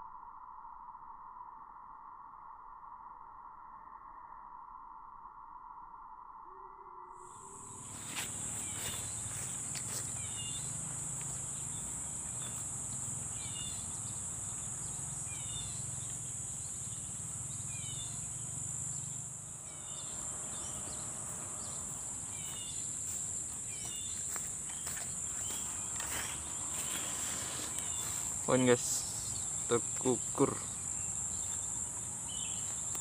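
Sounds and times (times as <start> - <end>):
high-pitched insect drone: 3.0 - 33.0
bird chirping: 7.1 - 33.0.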